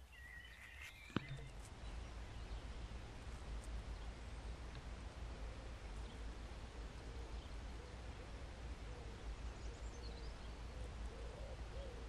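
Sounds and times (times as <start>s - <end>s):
faint bird chirps: 0.0s - 2.8s, 5.5s - 12.0s.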